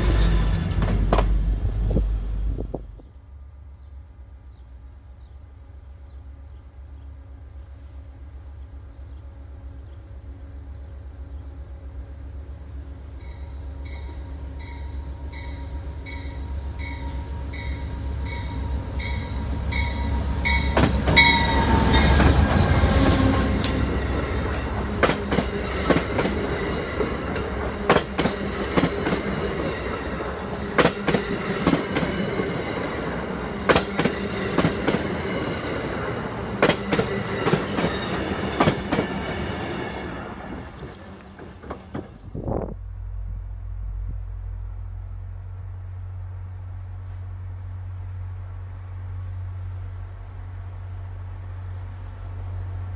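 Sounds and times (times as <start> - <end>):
diesel train rumble: 0.0 - 52.9
train bell ringing: 13.2 - 22.7
wheels clacking over rail joints: 18.3 - 22.7, 23.6 - 42.3.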